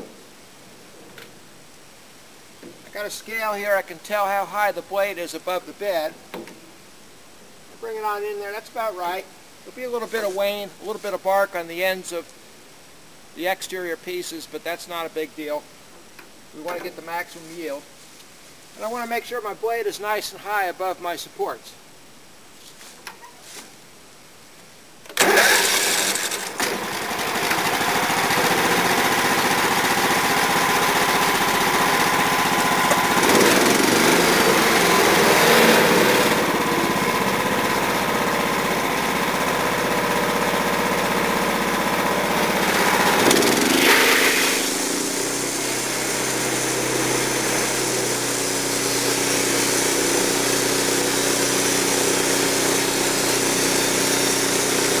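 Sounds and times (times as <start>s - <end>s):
sawmill gasoline engine running: 25.2s - 55.0s.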